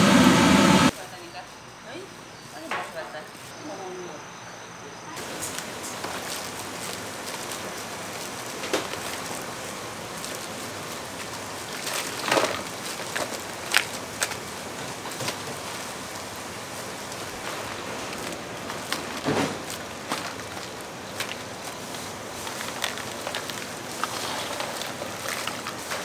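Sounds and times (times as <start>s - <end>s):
meat sizzling on a grill: 5.2s - 26.0s.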